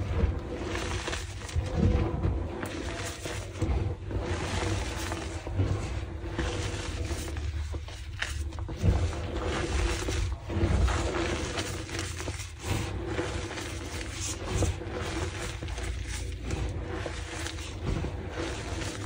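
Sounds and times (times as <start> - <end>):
chalk crunching and crackling: 0.0 - 19.0.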